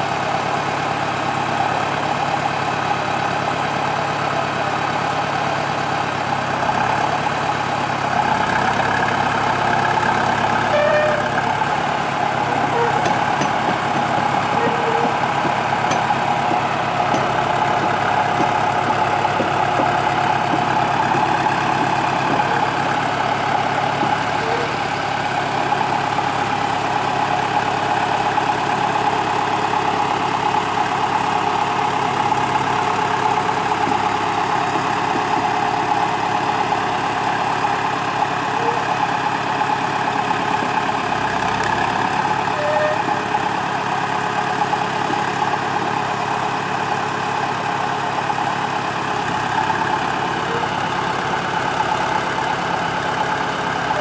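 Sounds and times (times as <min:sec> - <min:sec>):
diesel locomotive idling: 0:00.0 - 0:54.0.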